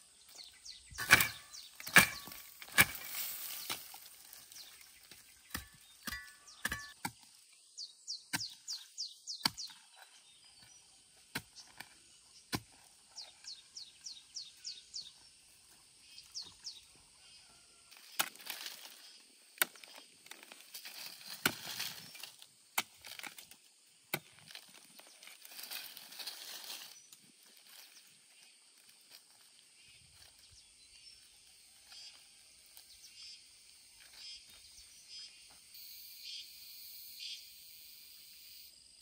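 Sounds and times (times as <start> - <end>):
bird chirping: 0.0 - 2.6, 4.4 - 7.0, 7.6 - 17.5
hand hoe chopping soil: 0.9 - 7.3, 8.3 - 13.5, 17.9 - 27.0
dry leaves rustling underfoot: 1.2 - 6.0, 17.9 - 33.2.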